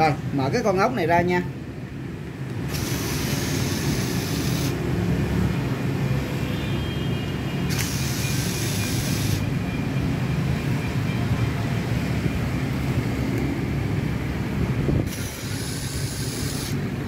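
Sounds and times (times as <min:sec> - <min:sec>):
electric screwdriver whining: 0:02.5 - 0:04.8, 0:07.7 - 0:09.4, 0:15.0 - 0:16.8.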